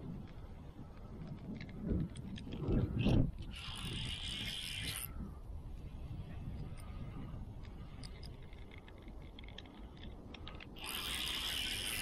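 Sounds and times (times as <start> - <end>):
fishing reel clicks: 2.4 - 5.2, 7.6 - 12.0
fishing reel whirring: 2.6 - 5.2, 7.8 - 12.0.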